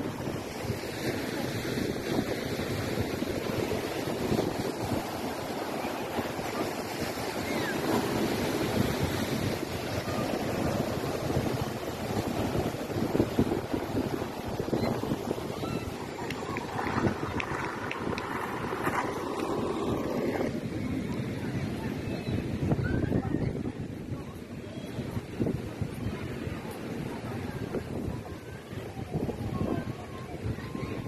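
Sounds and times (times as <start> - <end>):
waves breaking as surf: 0.0 - 22.0
wind buffeting microphone: 0.0 - 31.0.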